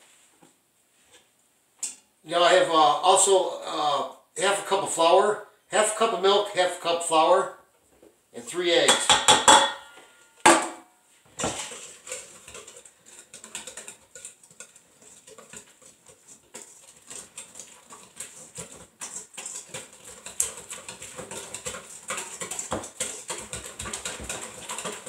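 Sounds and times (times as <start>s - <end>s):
whisk clanking on bowl: 11.4s - 25.0s
wire whisk beating in metal bowl: 11.4s - 25.0s.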